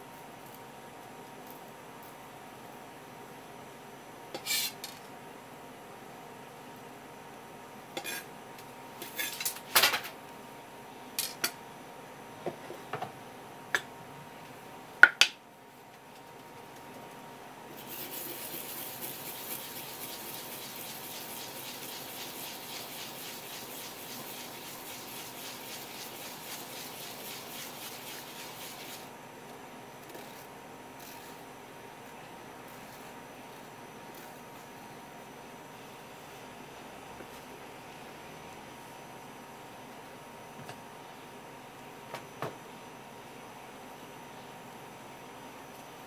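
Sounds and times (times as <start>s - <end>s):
root rasping on grater: 17.8s - 29.1s.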